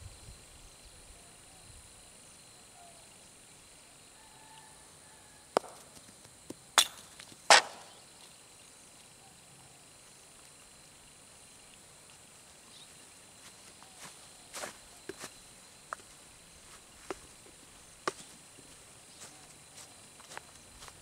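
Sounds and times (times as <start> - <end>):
high insect drone: 0.0 - 21.0
wooden mallet knocking ball: 5.6 - 5.8.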